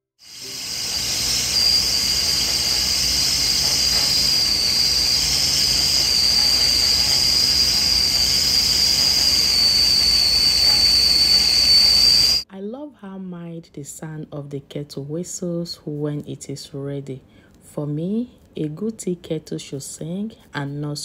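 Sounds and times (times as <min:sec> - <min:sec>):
steam hissing: 0:00.2 - 0:12.4
kettle whistling: 0:00.2 - 0:12.5.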